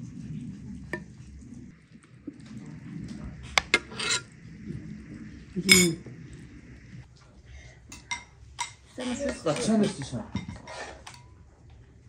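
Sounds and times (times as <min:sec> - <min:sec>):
metal spoon knocking in pan: 0:03.6 - 0:04.2.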